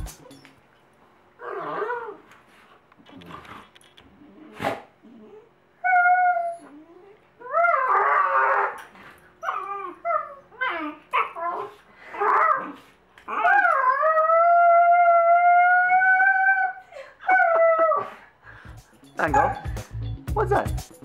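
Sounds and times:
dog whining and howling: 1.4s - 2.3s, 4.2s - 18.3s, 19.3s - 19.7s.

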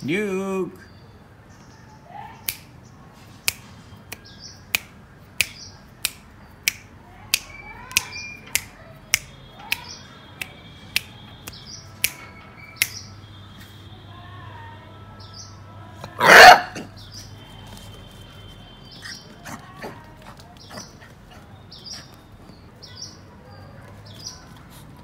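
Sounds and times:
fingers snapping: 2.4s - 2.8s, 3.4s - 12.2s, 12.8s - 13.1s.

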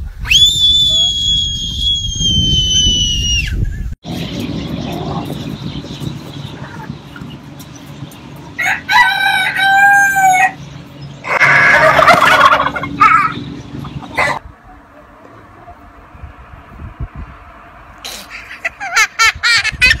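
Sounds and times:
rooster crowing: 8.6s - 10.6s
turkey gobbling: 11.3s - 14.4s.

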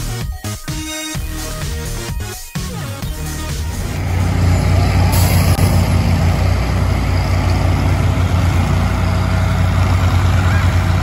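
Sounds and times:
truck engine running: 2.7s - 11.0s.

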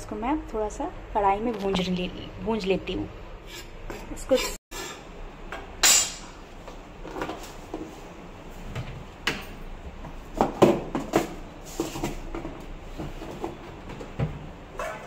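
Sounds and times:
cabinet items knocking and clattering: 10.1s - 14.6s.

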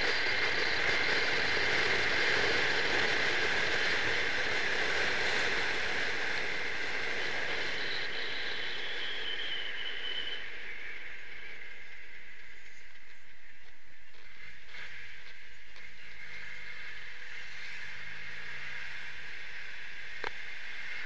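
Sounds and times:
wind and road noise: 0.0s - 21.0s
faint high whistle: 6.5s - 13.0s.

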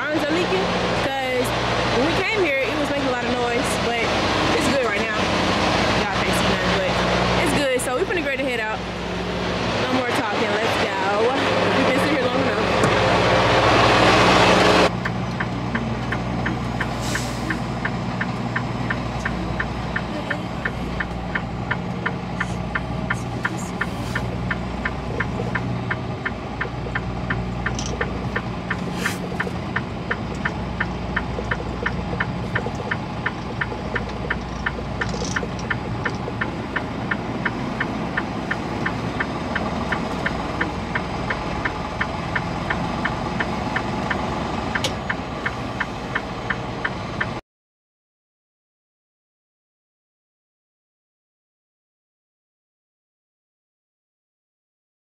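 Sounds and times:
diesel engine idling: 0.0s - 47.4s
regular ticking: 14.8s - 47.4s.

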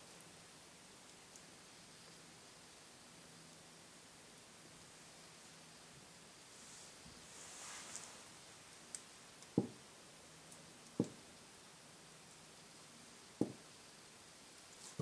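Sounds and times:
soft knocks: 9.6s - 9.8s, 11.0s - 11.2s, 13.4s - 13.6s.

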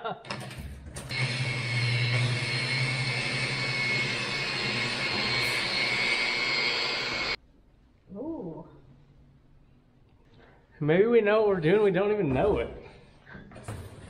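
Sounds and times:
electric buffer whining: 1.0s - 7.4s.

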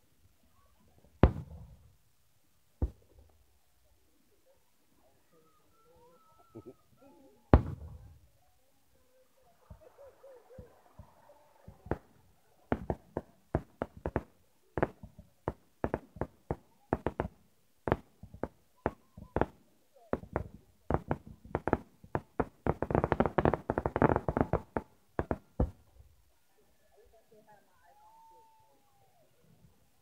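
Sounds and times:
fireworks bursting: 1.1s - 1.9s, 2.8s - 3.4s, 7.5s - 8.3s, 9.6s - 26.1s.

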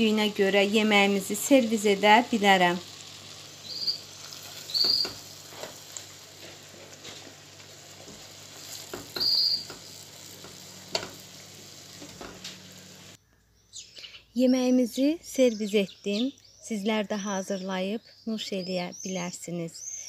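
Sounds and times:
faint oil sizzle: 0.0s - 13.2s
spatula scraping and tapping pot: 8.0s - 11.2s
short high squeaks: 9.1s - 9.9s.

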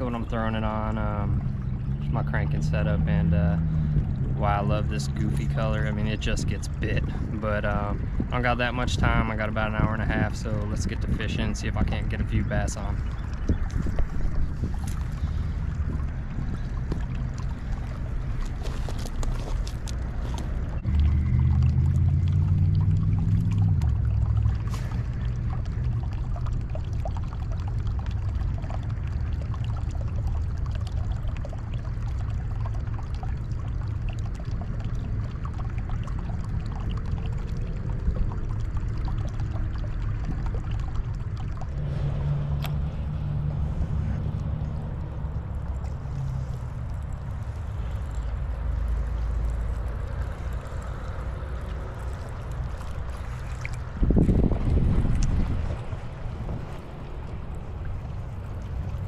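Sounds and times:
small waves lapping on rocks: 0.0s - 26.6s, 32.6s - 59.0s
low rumble: 0.0s - 59.0s.

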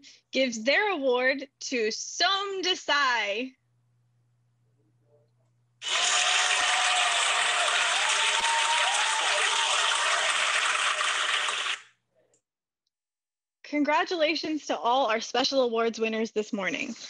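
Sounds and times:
applause: 5.8s - 11.9s.

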